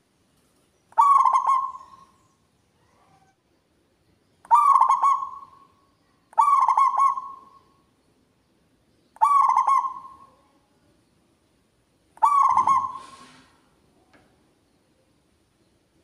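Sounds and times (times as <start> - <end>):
dove cooing: 1.0 - 2.0, 4.5 - 5.6, 6.4 - 7.5, 9.2 - 10.4, 12.2 - 13.5.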